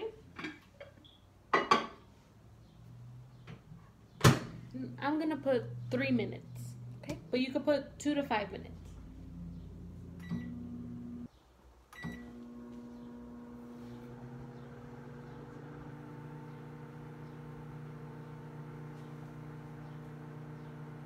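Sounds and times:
microwave oven humming: 8.7 - 11.3, 12.0 - 21.0.

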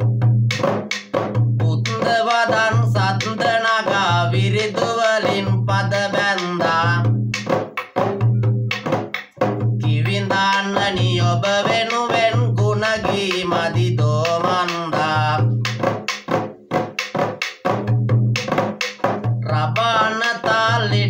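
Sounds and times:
frame drum beaten by hand: 0.0 - 21.0
man singing: 1.6 - 7.2, 9.8 - 15.8, 19.4 - 21.0.

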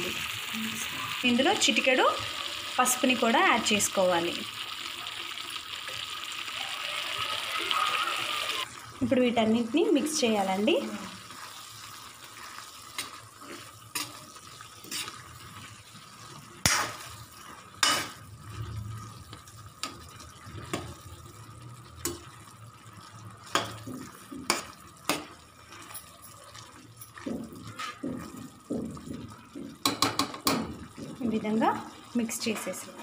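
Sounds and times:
spoon clinking and scraping pan: 12.4 - 15.5, 16.6 - 21.0, 23.4 - 28.5.

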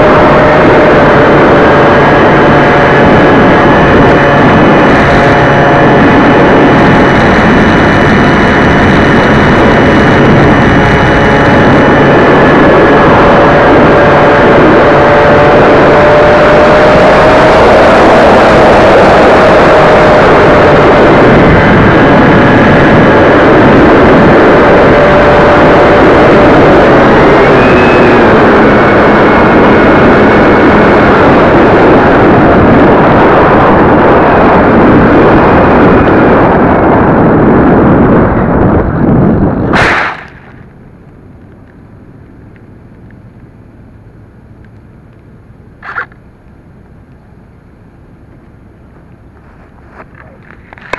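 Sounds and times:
rushing wind: 0.0 - 50.9
small click: 45.8 - 46.6.

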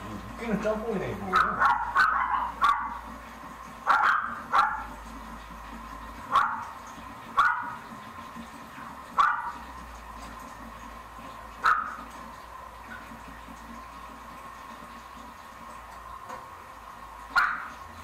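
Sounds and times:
dog barking indoors: 1.2 - 3.1, 3.8 - 5.0, 6.2 - 7.9, 9.1 - 9.7, 11.6 - 12.1, 17.3 - 17.9.

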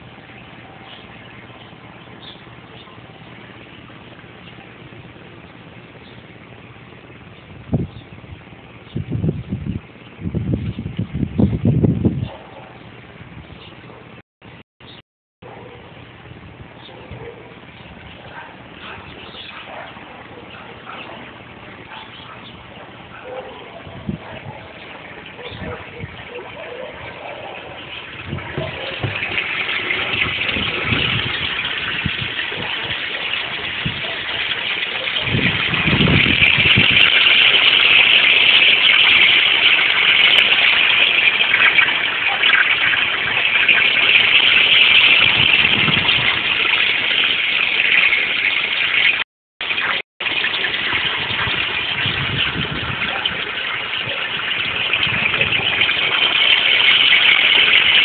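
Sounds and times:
water rushing and splashing: 24.7 - 58.0.

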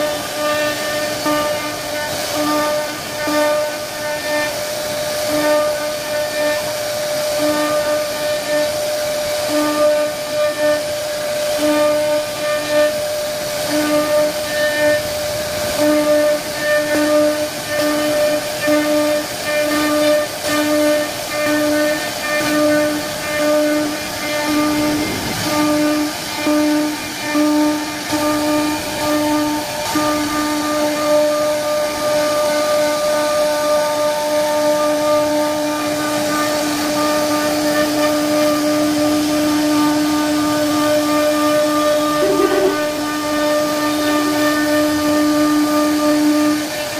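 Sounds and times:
router spindle whining: 42.0 - 43.8.

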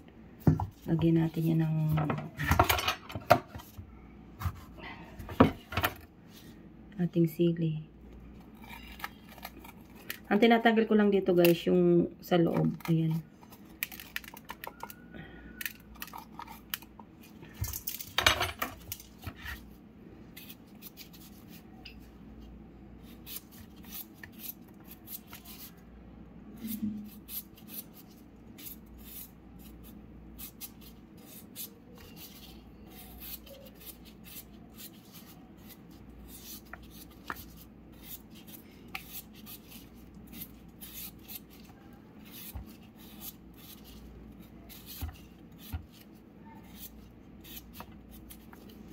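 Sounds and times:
knife cutting and scraping vegetables: 4.4 - 6.6, 8.3 - 10.7, 15.6 - 22.1, 23.0 - 25.8, 26.6 - 48.9.

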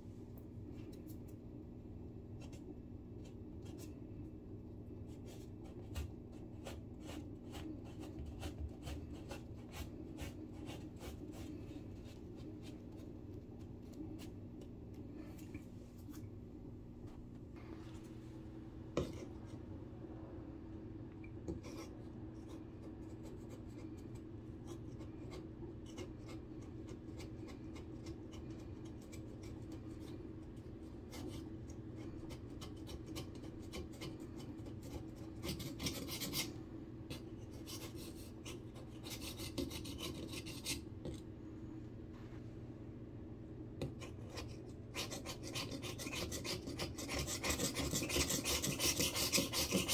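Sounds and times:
blade scraper rasping on drywall: 32.3 - 36.5, 44.9 - 49.9.

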